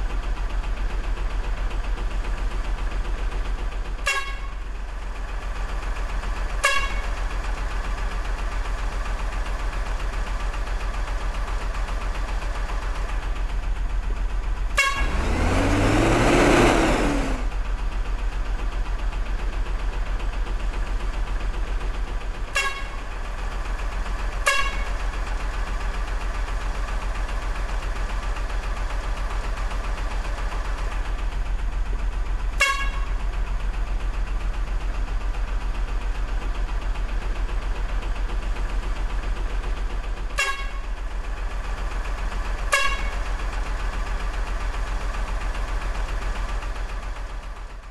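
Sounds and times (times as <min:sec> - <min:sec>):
short horn toots: 0:04.0 - 0:04.5, 0:06.6 - 0:07.0, 0:14.8 - 0:15.2, 0:22.5 - 0:23.0, 0:24.4 - 0:24.9, 0:32.6 - 0:33.0, 0:40.4 - 0:40.8, 0:42.7 - 0:43.1.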